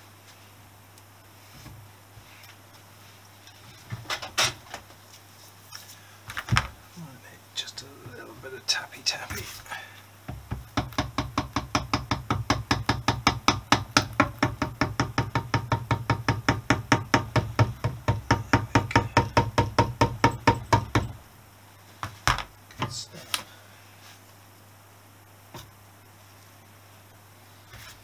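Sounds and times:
small knocks: 10.3s - 21.2s.

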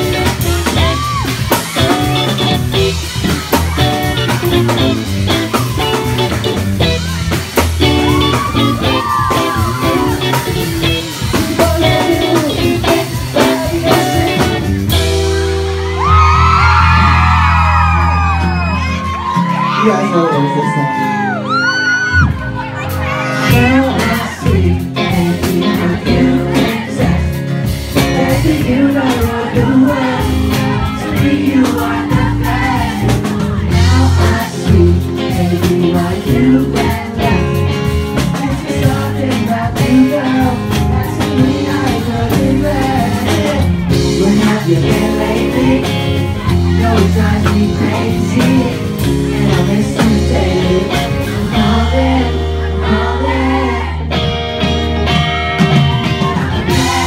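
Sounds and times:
live band playing pop-rock: 0.0s - 57.0s
man singing into a microphone: 11.2s - 14.7s, 23.4s - 27.4s, 28.0s - 32.9s, 33.7s - 37.6s, 38.2s - 53.9s.

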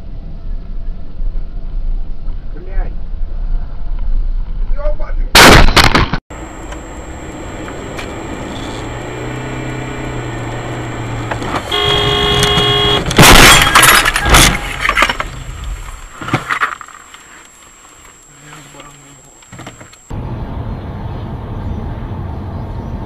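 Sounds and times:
car engine and road noise: 0.0s - 4.8s, 6.3s - 23.0s
loud collision crash: 5.3s - 6.2s, 11.5s - 15.6s
car horn: 8.4s - 14.5s.

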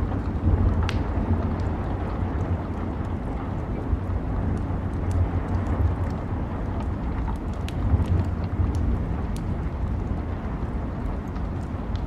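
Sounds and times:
sharp pops from fire: 0.0s - 3.2s
continuous low rumble: 0.0s - 12.0s
log fire crackling: 0.0s - 12.0s
rain: 0.0s - 12.0s.

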